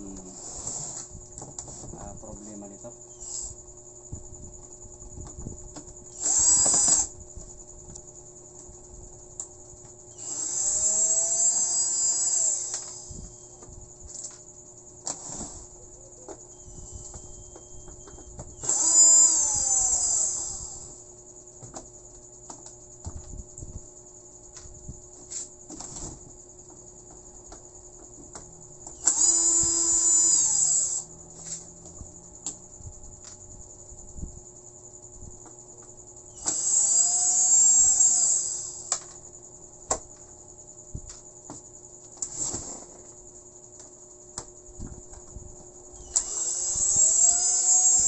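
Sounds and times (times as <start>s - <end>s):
electric screwdriver whirring: 6.2s - 7.1s, 10.2s - 13.2s, 18.6s - 20.9s, 29.0s - 31.0s, 36.4s - 39.0s, 46.0s - 48.0s.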